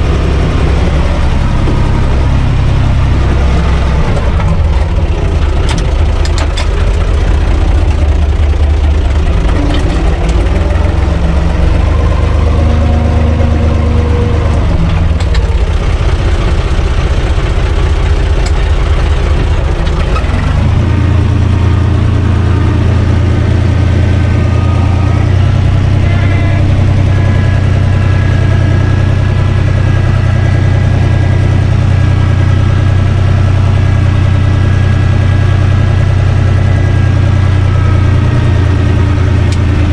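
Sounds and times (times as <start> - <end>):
tractor diesel engine running: 0.0 - 39.9.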